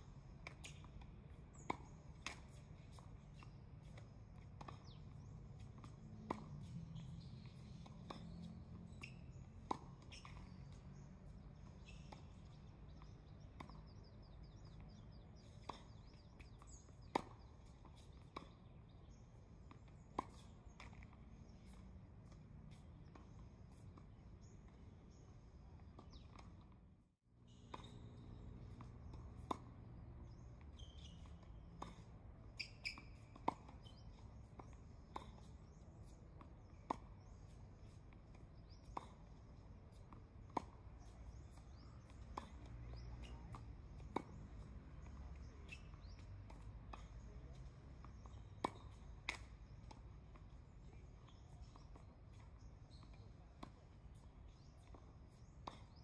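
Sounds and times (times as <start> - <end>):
tennis ball bouncing: 0.4 - 26.7, 27.6 - 56.0.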